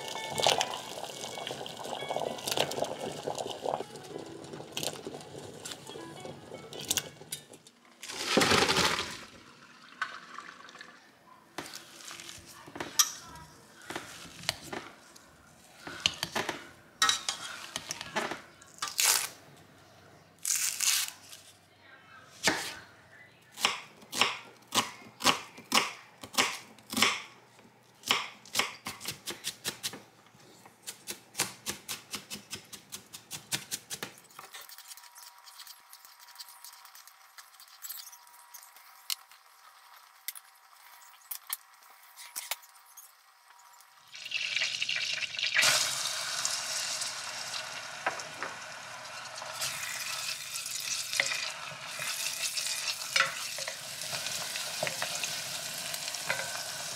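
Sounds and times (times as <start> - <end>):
butter hissing in saucepan: 44.1 - 56.9.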